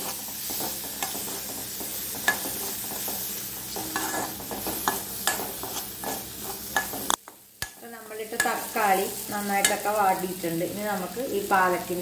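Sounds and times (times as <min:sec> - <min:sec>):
metal spoon scraping pan: 0:00.0 - 0:07.8
vegetables sizzling in oil: 0:00.0 - 0:12.0.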